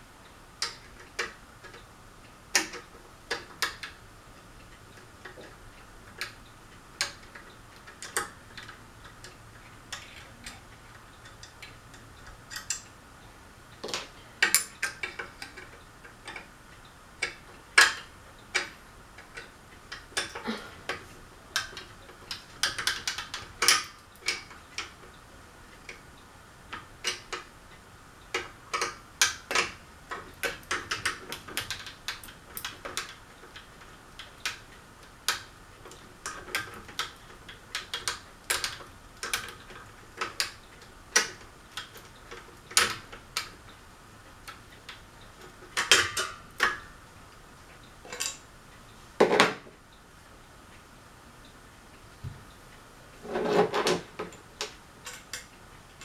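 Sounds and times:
metallic clicks and clinks: 11.2s - 13.0s, 48.1s - 48.4s.

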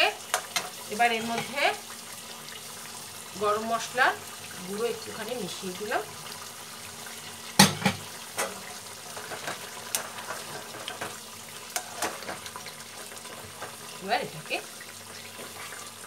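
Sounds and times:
curry simmering and sizzling: 0.0s - 16.0s
spatula scraping a pan: 0.3s - 1.6s, 7.5s - 16.0s.

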